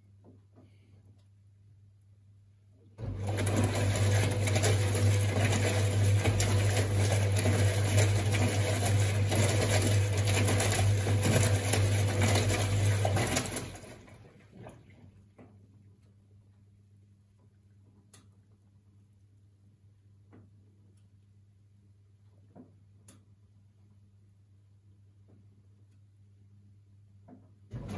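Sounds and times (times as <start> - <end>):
washing machine motor humming and whirring: 3.0 - 15.4, 27.6 - 27.9.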